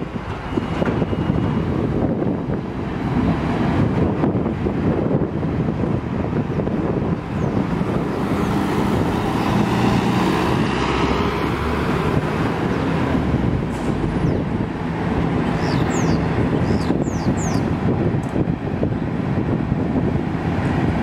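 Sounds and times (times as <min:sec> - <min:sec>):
diesel engines idling: 0:00.0 - 0:21.0
street traffic noise: 0:00.0 - 0:21.0
wind buffeting microphone: 0:00.0 - 0:21.0.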